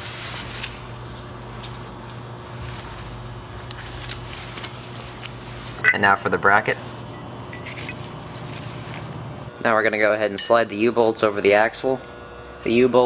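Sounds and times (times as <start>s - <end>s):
gloved hands rubbing: 1.5s - 5.8s
low hum: 6.8s - 10.1s.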